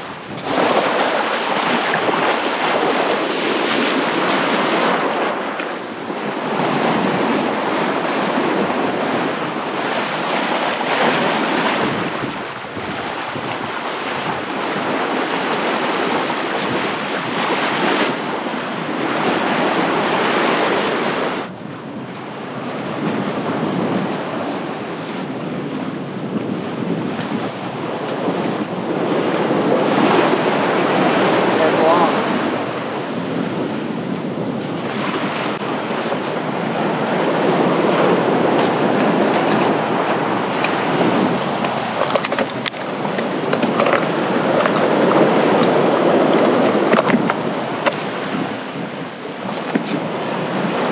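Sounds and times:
water rushing along boat bow: 0:00.0 - 0:50.9
wind buffeting microphone: 0:00.0 - 0:50.9.

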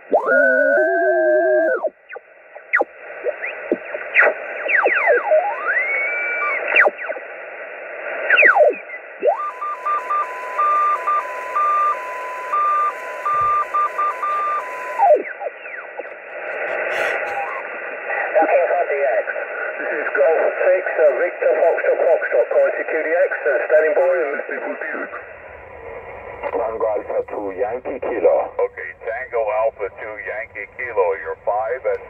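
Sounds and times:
radio whistles sliding in pitch: 0:00.0 - 0:07.2, 0:08.3 - 0:16.1
radio hiss: 0:00.0 - 0:32.0
digital data signal tones: 0:08.3 - 0:17.6.

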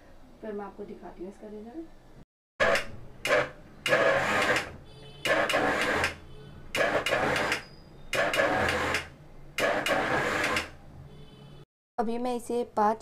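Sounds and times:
mixer grinder whirring: 0:02.6 - 0:06.2, 0:06.8 - 0:07.6, 0:08.2 - 0:10.8.

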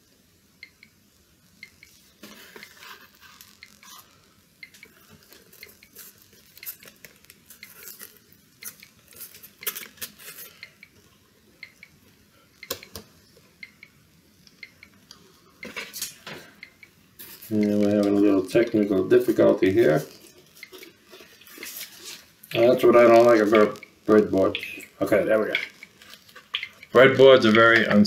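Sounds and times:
fingers clicking on breadboard wires: 0:12.6 - 0:13.8, 0:25.5 - 0:28.0.

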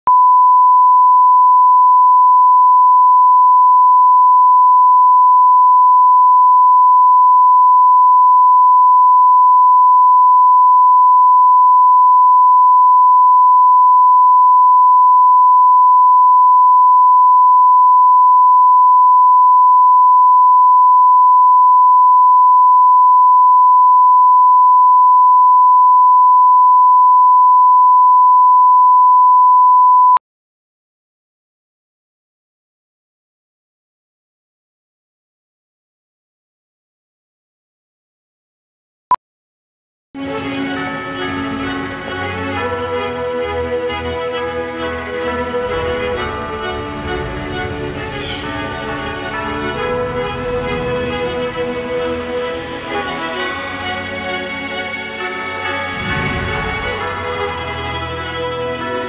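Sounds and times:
steady test tone beep: 0:00.1 - 0:30.2.

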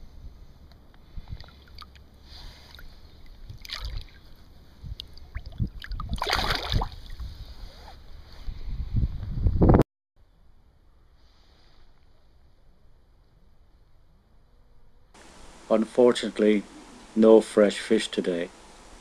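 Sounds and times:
water splashing at river's edge: 0:01.2 - 0:07.2
wind buffeting microphone: 0:03.0 - 0:09.8.

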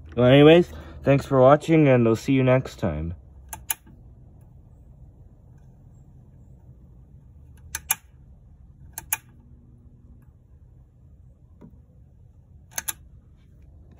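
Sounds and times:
toggle switch double clicks: 0:03.5 - 0:04.0, 0:07.6 - 0:08.1, 0:08.9 - 0:09.4, 0:12.7 - 0:13.0.

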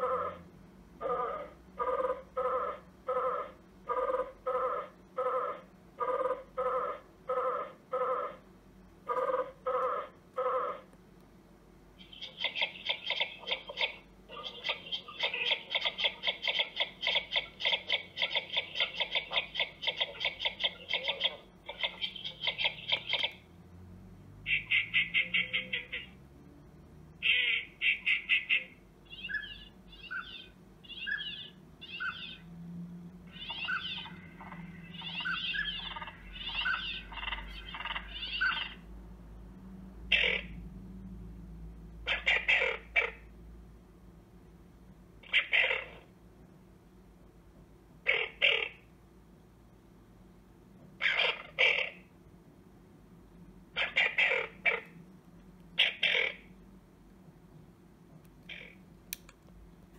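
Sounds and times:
bird calls with falling note: 0:33.3 - 0:38.8.

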